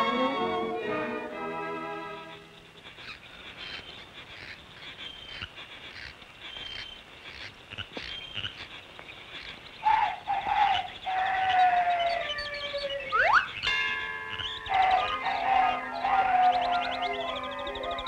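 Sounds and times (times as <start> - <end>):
frog-like chirps and croaks: 2.6 - 13.7, 14.3 - 18.0
held pitched call: 9.8 - 18.0.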